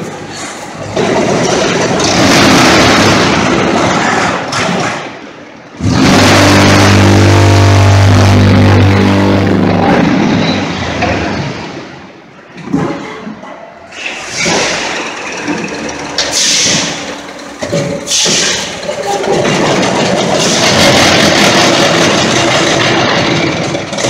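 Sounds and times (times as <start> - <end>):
loud machinery hum: 0.0 - 12.6, 13.8 - 24.0
metal clanks and knocks: 12.5 - 24.0.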